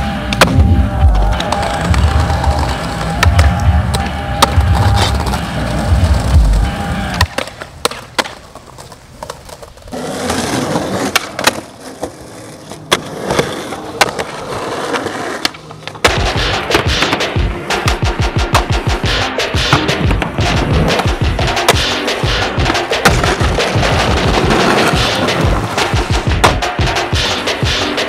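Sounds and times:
music playing: 0:00.0 - 0:07.7, 0:15.2 - 0:28.0
skateboard wheels rolling on concrete: 0:00.0 - 0:19.0, 0:19.7 - 0:28.0
skateboard wooden clacks: 0:06.2 - 0:12.2, 0:22.5 - 0:27.1.

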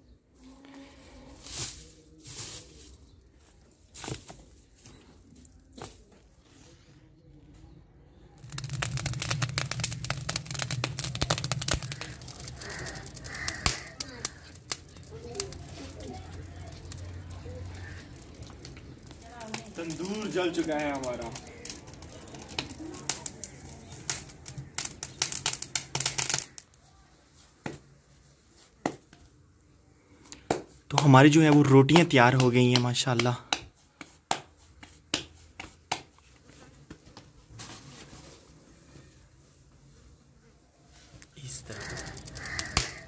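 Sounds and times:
dry grass and sticks crackling: 0:00.4 - 0:06.4, 0:08.4 - 0:27.8, 0:30.2 - 0:33.4, 0:41.3 - 0:43.0.

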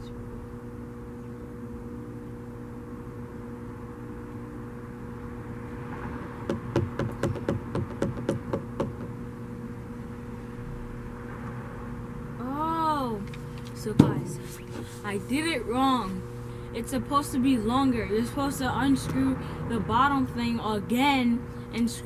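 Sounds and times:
steady low hum: 0:00.0 - 0:22.0
rapid sharp knocks: 0:06.5 - 0:09.1.

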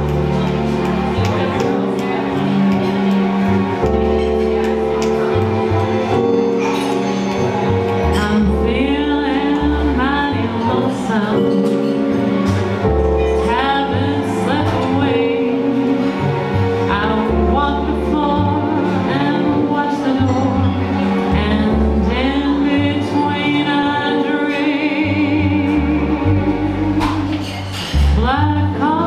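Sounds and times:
keyboard chords: 0:00.0 - 0:29.0
walking upright bass: 0:00.0 - 0:29.0
woman singing: 0:08.2 - 0:11.8, 0:13.3 - 0:16.0, 0:16.9 - 0:27.3, 0:28.0 - 0:29.0.

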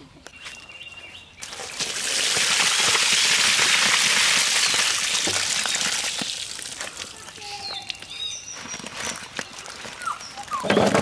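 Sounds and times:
water pouring into basket: 0:01.4 - 0:07.1.

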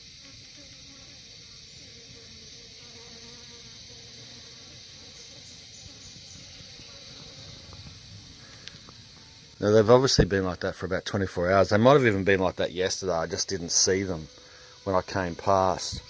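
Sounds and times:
flies buzzing: 0:00.0 - 0:10.7, 0:11.4 - 0:16.0
high insect hiss: 0:00.0 - 0:16.0.

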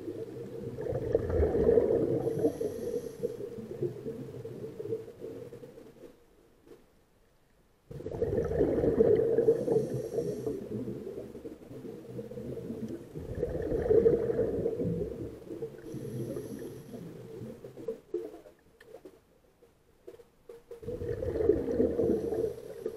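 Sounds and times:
bubbling exhaled air underwater: 0:00.0 - 0:05.6, 0:07.9 - 0:18.6, 0:20.8 - 0:22.9.

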